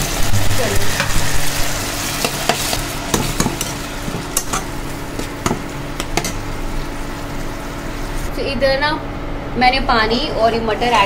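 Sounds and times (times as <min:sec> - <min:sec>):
masala sizzling in hot oil: 0:00.0 - 0:08.5.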